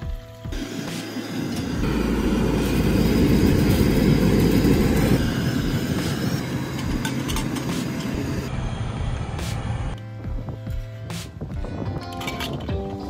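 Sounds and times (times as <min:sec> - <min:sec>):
gas burner flame rumbling: 0:00.0 - 0:10.0.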